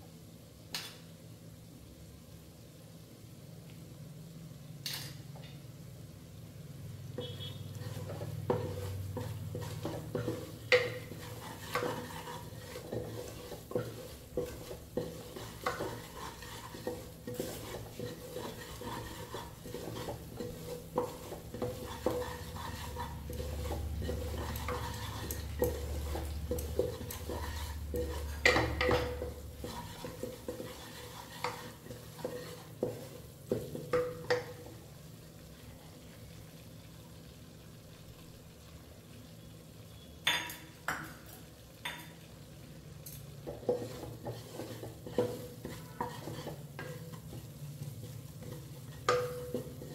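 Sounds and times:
food frying in a pan: 0:00.0 - 0:49.9
metal spoon scraping a pan: 0:07.2 - 0:34.7, 0:43.0 - 0:49.9.

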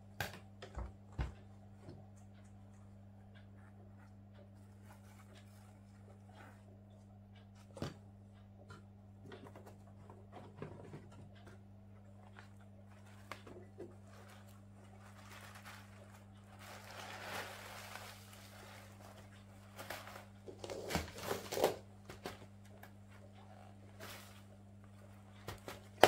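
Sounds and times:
steady low hum: 0:00.0 - 0:26.0
plastic rustling: 0:12.4 - 0:22.5.

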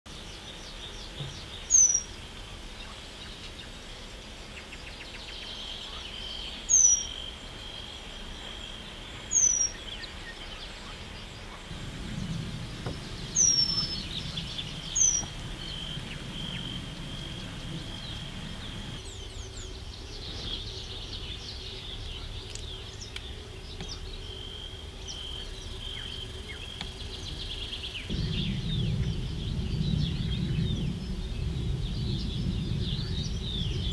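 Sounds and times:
outdoor background noise: 0:00.1 - 0:33.9
bird high whistles sliding downward: 0:12.9 - 0:19.0.

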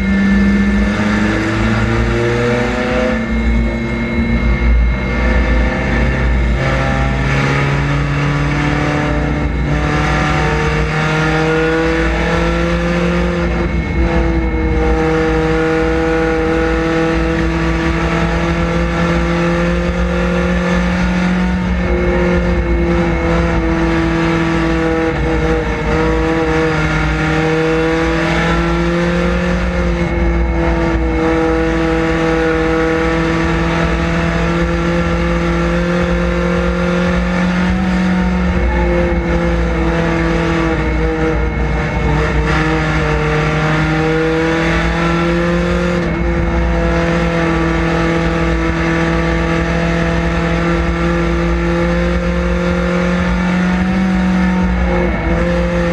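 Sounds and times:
race car engine under load: 0:00.0 - 0:55.9.

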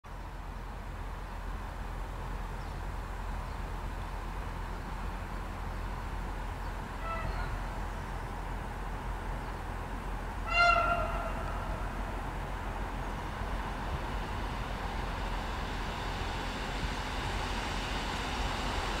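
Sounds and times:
train rumbling on track: 0:00.1 - 0:19.0
train horn blast: 0:07.0 - 0:07.6, 0:10.4 - 0:12.2.

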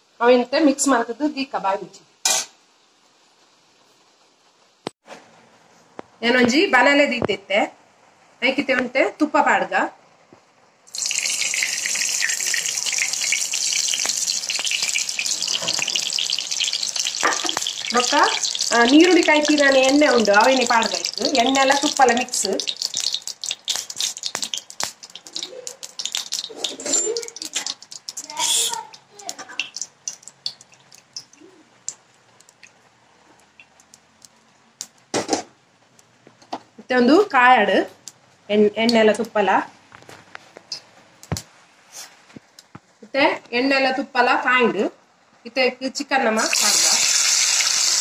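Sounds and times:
oil sizzling in a pan: 0:10.8 - 0:35.0, 0:46.4 - 0:48.0.

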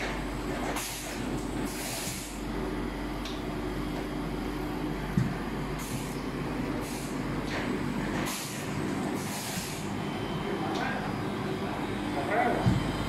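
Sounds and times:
printing machine drone: 0:00.0 - 0:13.0
pneumatic air hisses: 0:00.8 - 0:02.4, 0:06.8 - 0:07.2, 0:09.2 - 0:09.9.

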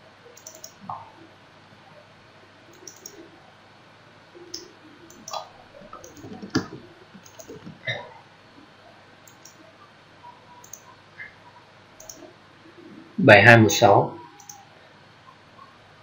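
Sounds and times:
computer mouse clicks: 0:00.4 - 0:00.8, 0:02.7 - 0:03.2, 0:04.5 - 0:05.4, 0:06.0 - 0:07.7, 0:09.3 - 0:09.6, 0:10.6 - 0:10.9, 0:12.0 - 0:12.3, 0:14.4 - 0:14.6
keyboard keystrokes: 0:00.4 - 0:00.8, 0:02.7 - 0:03.2, 0:04.6 - 0:05.4, 0:06.0 - 0:07.7, 0:09.3 - 0:09.6, 0:10.6 - 0:10.8, 0:12.0 - 0:12.2, 0:14.4 - 0:14.6.

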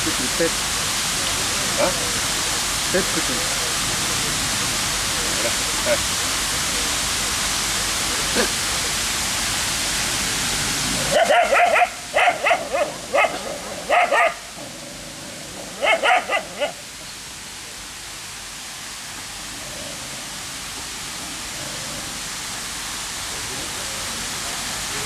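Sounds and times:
steady background hiss: 0:00.0 - 0:25.0
dog barking: 0:11.1 - 0:14.4, 0:15.8 - 0:16.8.

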